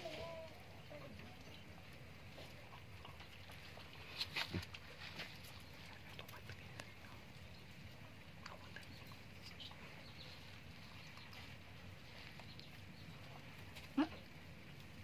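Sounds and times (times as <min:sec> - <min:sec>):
low steady hum: 0:00.0 - 0:15.0
puppies lapping: 0:02.2 - 0:12.6.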